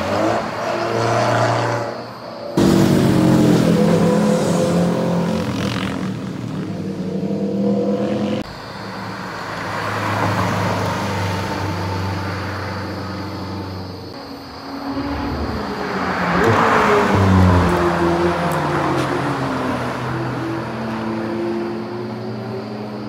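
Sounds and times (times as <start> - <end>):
sports car engine accelerating: 14.9 - 21.2.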